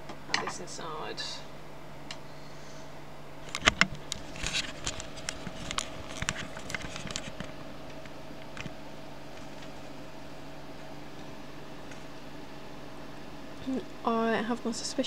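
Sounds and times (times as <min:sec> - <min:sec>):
steady low hum: 0:00.0 - 0:15.0
handling clicks and rustles: 0:03.4 - 0:09.8.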